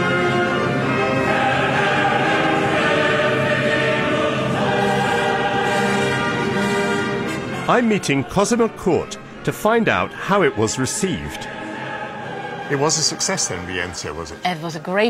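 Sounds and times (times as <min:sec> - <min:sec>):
opera chorus singing: 0:00.0 - 0:15.0.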